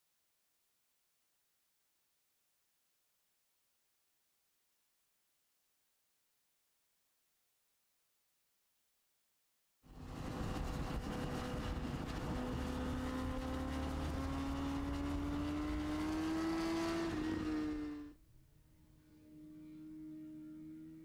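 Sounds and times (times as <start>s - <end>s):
motorcycle engine at high revs: 10.2s - 18.1s.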